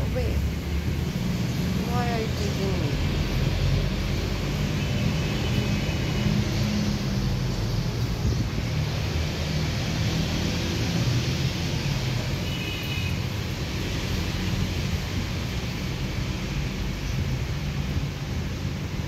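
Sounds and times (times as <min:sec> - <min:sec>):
wind buffeting microphone: 0:06.7 - 0:12.3, 0:13.5 - 0:19.0.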